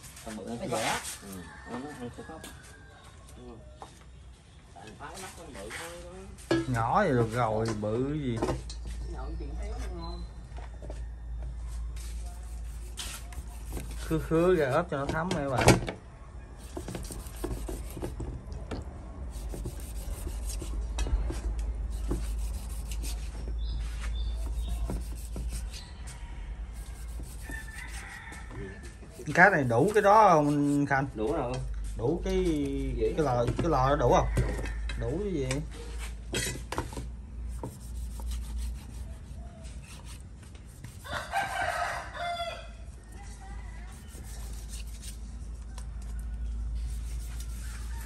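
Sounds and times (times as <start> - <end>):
knife cutting fish skin: 12.3 - 14.9, 16.6 - 18.2, 19.3 - 20.8, 21.9 - 23.3, 24.4 - 25.8.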